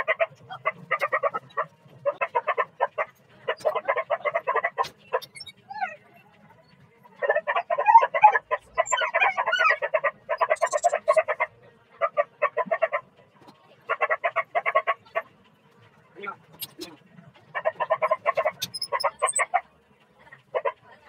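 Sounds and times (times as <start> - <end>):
animal calling rapid notes: 7.3 - 11.4, 17.6 - 19.6.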